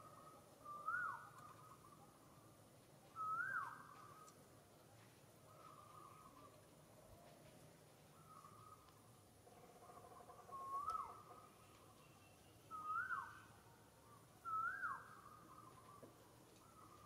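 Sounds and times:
whistled animal calls: 0.0s - 2.0s, 3.2s - 4.3s, 12.7s - 13.5s, 14.4s - 16.1s.

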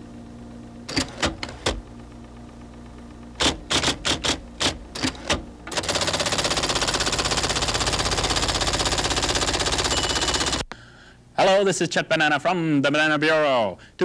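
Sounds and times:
typewriter clacking: 3.4s - 10.6s.

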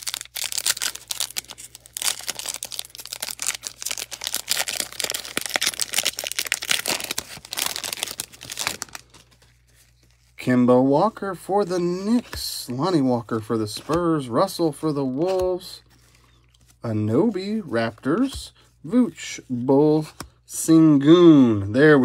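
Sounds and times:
foil wrapper crinkling and tearing: 0.0s - 10.4s.

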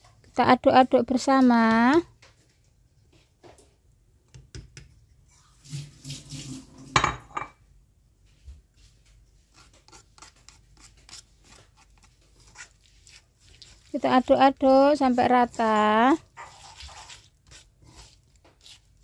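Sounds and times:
spatula scraping stone bowl: 9.6s - 19.0s.

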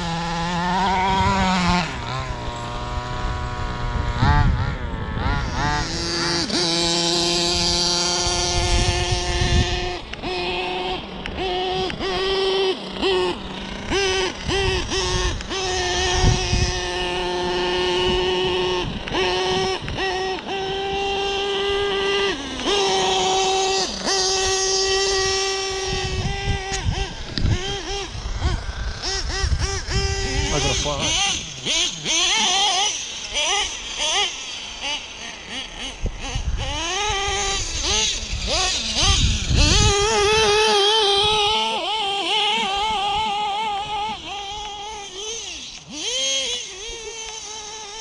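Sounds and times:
toy car motor revving: 0.0s - 48.0s.

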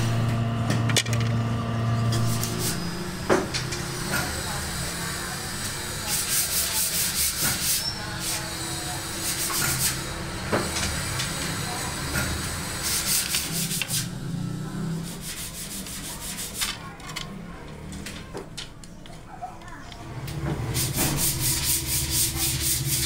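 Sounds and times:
low motor hum: 0.0s - 6.1s, 7.5s - 16.0s, 20.0s - 23.0s.

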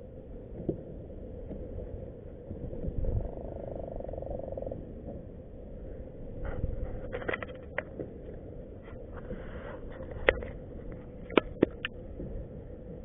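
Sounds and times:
faint steady hum: 0.0s - 13.0s
wind and water rumble: 0.0s - 13.0s
clicks and knocks of fishing gear: 6.5s - 12.0s.

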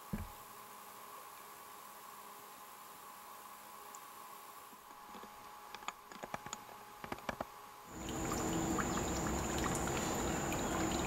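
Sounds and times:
underwater clicks and ticks: 5.7s - 7.5s
water trickling and lapping: 7.9s - 11.0s.

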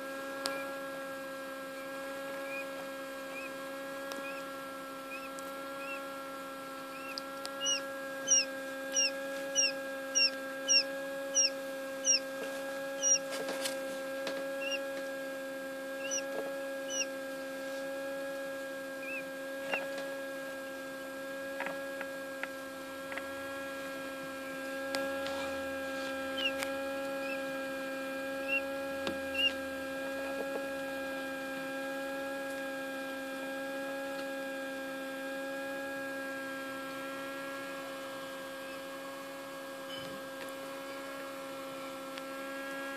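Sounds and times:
egg incubator humming: 0.0s - 42.9s
chick peeping: 2.4s - 6.1s, 6.9s - 13.4s, 14.6s - 14.9s, 16.0s - 17.1s, 19.0s - 19.9s, 26.3s - 27.4s, 28.4s - 29.7s.

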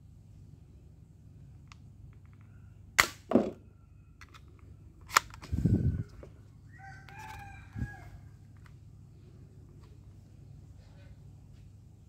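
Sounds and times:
rooster crowing: 5.8s - 8.5s.

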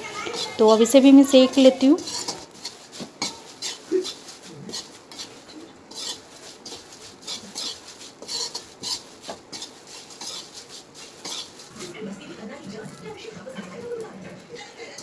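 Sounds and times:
metal spoon scraping metal pan: 0.0s - 11.8s
dry flakes rustling: 0.0s - 13.3s.

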